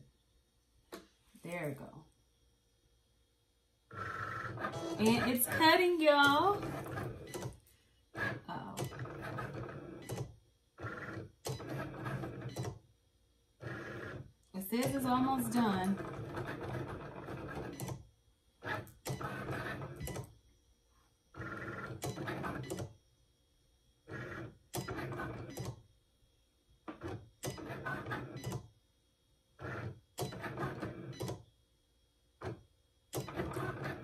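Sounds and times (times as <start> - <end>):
cutting machine motors: 4.2 - 7.4.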